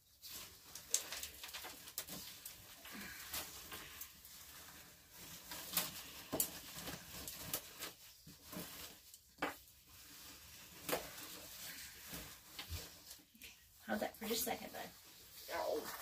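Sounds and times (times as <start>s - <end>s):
hands rustling potting soil: 0.0s - 16.0s
light taps and crinkles of plastic trays: 9.0s - 9.7s.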